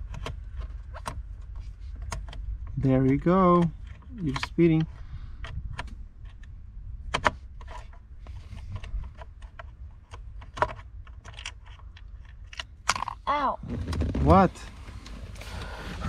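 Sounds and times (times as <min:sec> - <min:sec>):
low handling rumble: 0:13.3 - 0:16.0.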